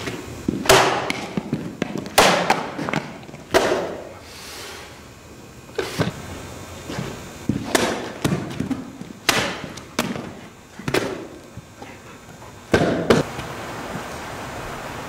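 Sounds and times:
sword whacking through tubes: 0.6 - 1.4, 2.2 - 4.1, 7.6 - 10.3.

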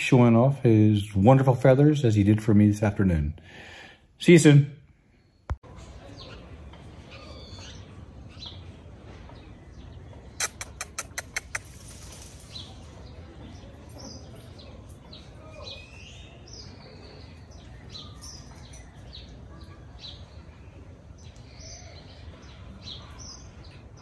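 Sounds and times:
small birds chirping: 5.0 - 24.0.

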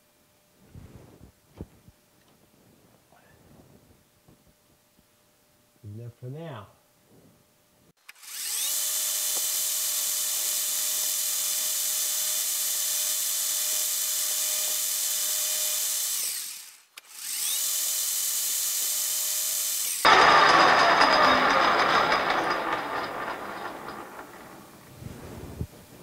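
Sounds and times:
metal lathe whining: 20.1 - 24.9.

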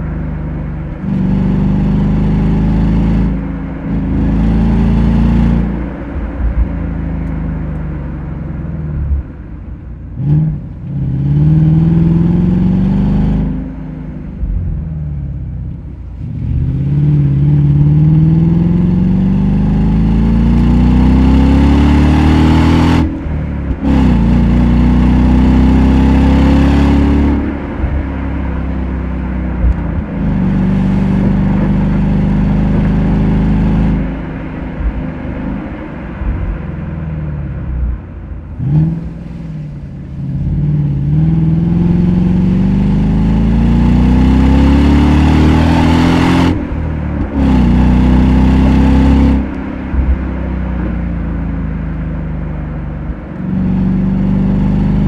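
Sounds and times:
car engine accelerating hard: 0.0 - 55.0.

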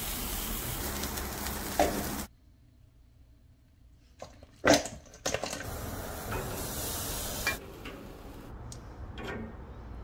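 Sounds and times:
food sizzling on grill: 0.0 - 2.3, 5.7 - 7.6.

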